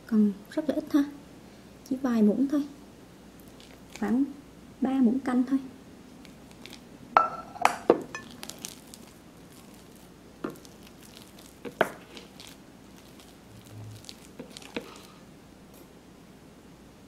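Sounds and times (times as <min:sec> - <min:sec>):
spatula stirring mashed potatoes: 0:08.1 - 0:15.3.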